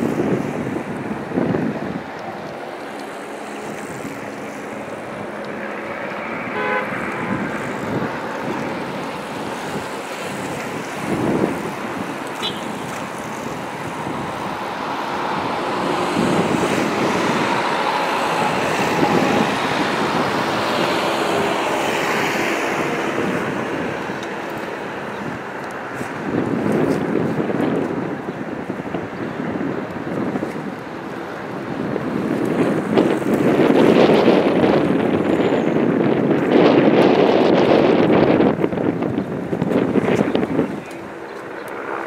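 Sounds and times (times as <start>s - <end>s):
vehicles driving past: 0.0s - 42.0s.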